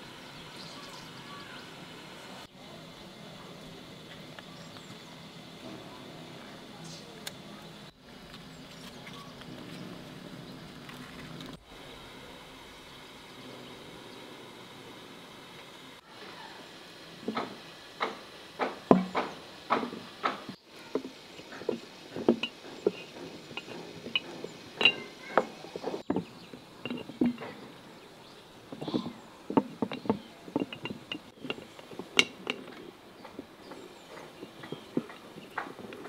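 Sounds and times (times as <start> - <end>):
glass clinks: 21.4 - 25.5, 26.1 - 27.6, 28.7 - 32.7.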